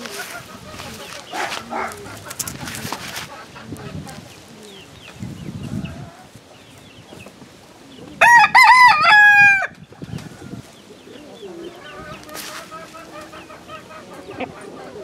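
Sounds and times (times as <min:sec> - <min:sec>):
rooster crowing: 0:08.2 - 0:09.8.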